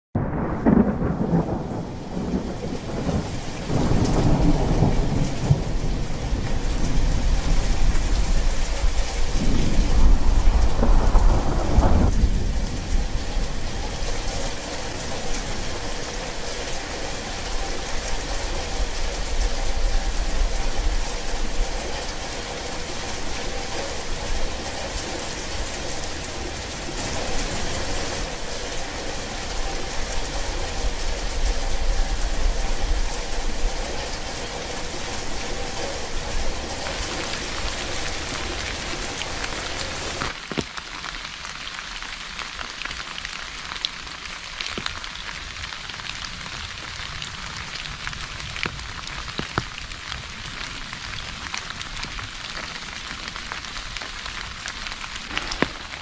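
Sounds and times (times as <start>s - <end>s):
thunder rumbling: 0.2s - 40.4s
steady rain falling: 0.2s - 56.0s.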